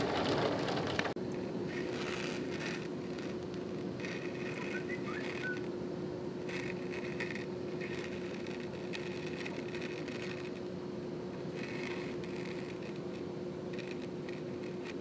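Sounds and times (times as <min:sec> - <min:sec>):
heavy rain through window: 0:00.0 - 0:01.1
low hum: 0:00.0 - 0:15.0
faint short whistles: 0:04.5 - 0:05.7.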